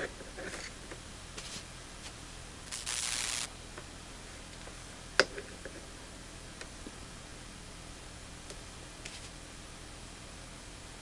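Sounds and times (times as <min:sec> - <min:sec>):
background hiss: 0:02.6 - 0:03.6
short rustling hiss: 0:02.7 - 0:03.5.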